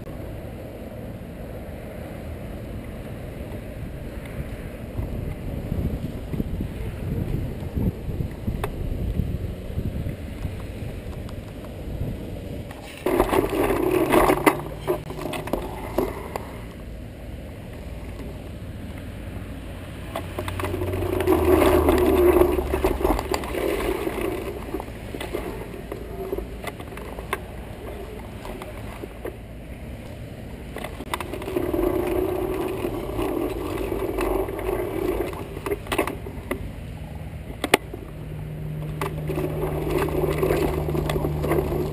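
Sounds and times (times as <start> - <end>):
low rumble: 2.6 - 41.9
tyres crunching over gravel: 12.5 - 41.9.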